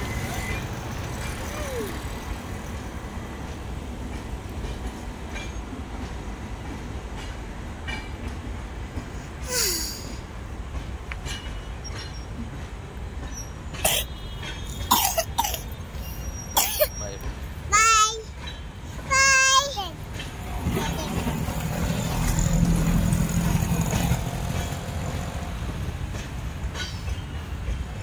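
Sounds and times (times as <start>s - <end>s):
train coaches rumbling on track: 0.0s - 28.0s.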